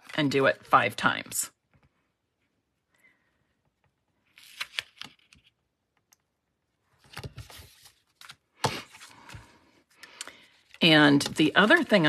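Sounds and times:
paper rustling: 0:04.3 - 0:05.6, 0:07.0 - 0:12.0.

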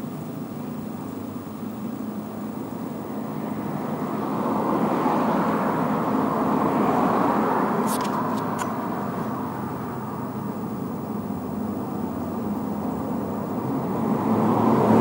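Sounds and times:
car passing by: 0:03.7 - 0:09.9, 0:13.6 - 0:15.0.

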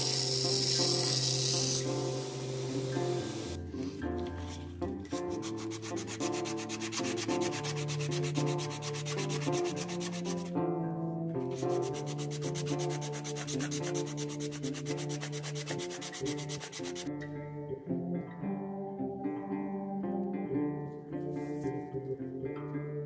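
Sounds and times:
hand sanding strokes: 0:04.4 - 0:10.5, 0:11.5 - 0:17.1.

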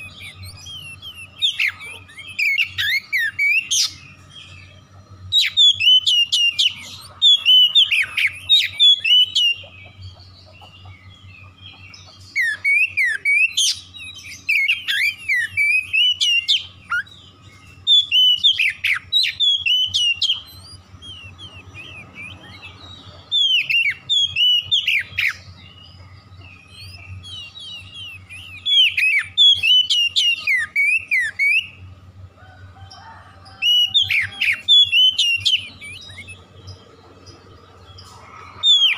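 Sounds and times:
bird singing whistled phrases: 0:00.0 - 0:04.3, 0:12.3 - 0:17.2, 0:17.8 - 0:25.4, 0:26.5 - 0:31.8, 0:33.6 - 0:36.6.

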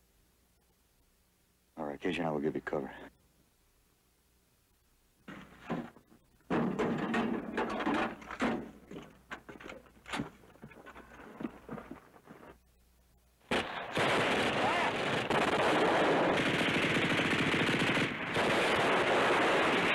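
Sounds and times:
footsteps on dirt and gravel: 0:08.8 - 0:12.6.

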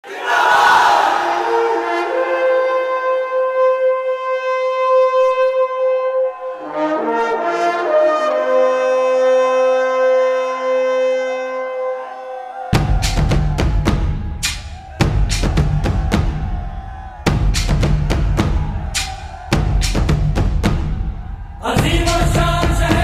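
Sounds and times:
long held horn-like notes: 0:01.2 - 0:12.7.

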